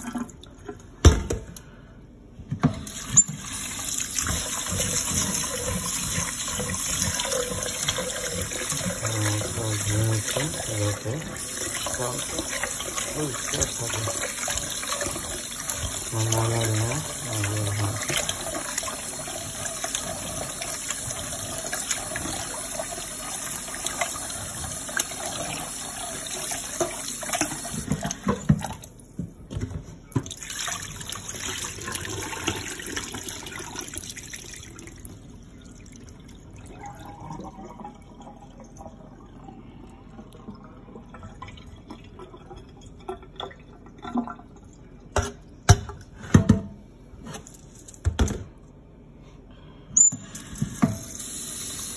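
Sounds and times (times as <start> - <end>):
water sloshing and pouring: 2.8 - 29.1, 30.1 - 45.4.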